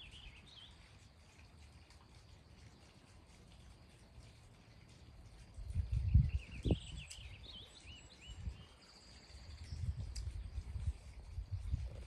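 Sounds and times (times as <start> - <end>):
songbird singing: 0.0 - 12.0
wind buffeting microphone: 4.8 - 12.0.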